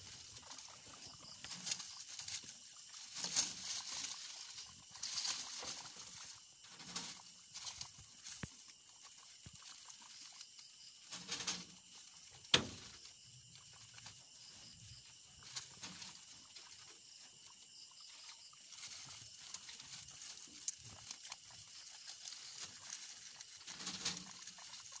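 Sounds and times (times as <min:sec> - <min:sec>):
rustling through grass stalks: 0:00.0 - 0:10.4
guinea pigs munching grass: 0:00.0 - 0:25.0.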